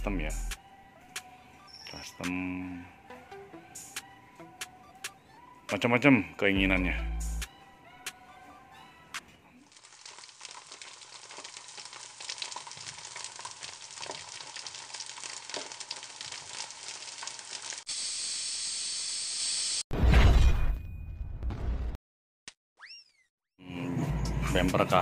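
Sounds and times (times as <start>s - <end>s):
crackling sizzling noise: 9.6s - 19.8s.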